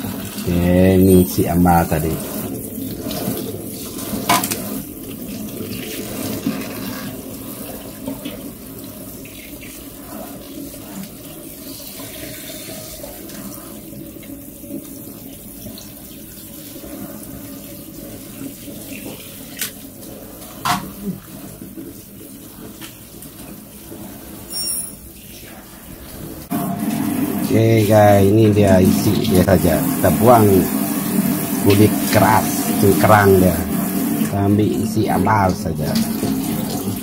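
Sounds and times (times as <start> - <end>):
water splashing over colander: 0.0 - 24.5, 25.2 - 37.0
sharp metal clinks: 24.5 - 25.0.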